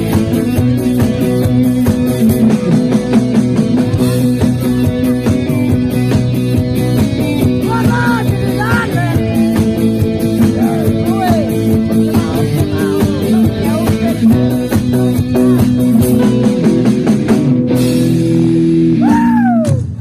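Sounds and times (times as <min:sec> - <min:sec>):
drum kit beat: 0:00.0 - 0:20.0
electric bass: 0:00.0 - 0:20.0
electric guitars: 0:00.0 - 0:20.0
man singing: 0:06.8 - 0:16.0.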